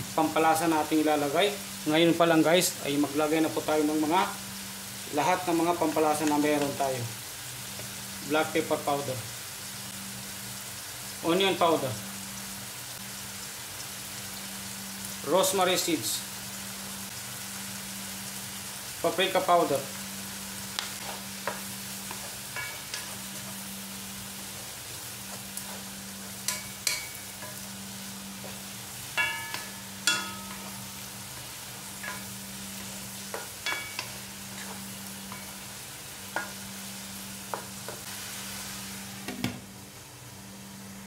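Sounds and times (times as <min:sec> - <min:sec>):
food sizzling in a wok: 0:00.0 - 0:41.0
wooden spatula knocking on pan: 0:29.2 - 0:30.9, 0:33.3 - 0:34.8.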